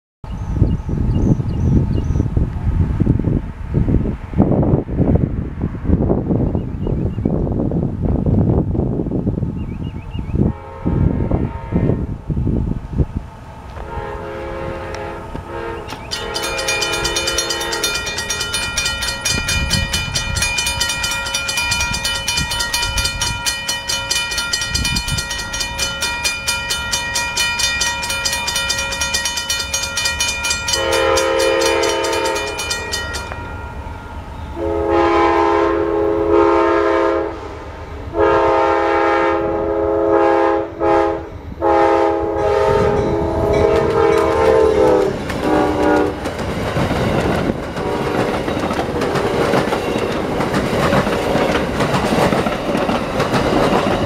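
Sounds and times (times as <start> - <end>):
locomotive horn blasts: 10.4 - 12.1, 13.8 - 18.4, 29.7 - 33.5, 34.5 - 37.5, 38.1 - 46.3, 47.8 - 49.7
crossing bell ringing: 15.9 - 35.4, 42.5 - 54.0.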